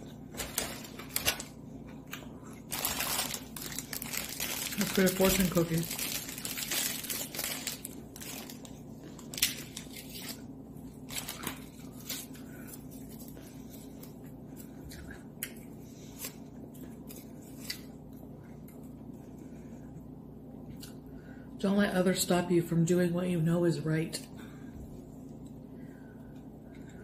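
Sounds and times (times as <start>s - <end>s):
crisp cookie cracking and crunching: 0.0s - 18.2s
plastic wrapper crinkling: 0.3s - 1.6s, 2.6s - 12.4s.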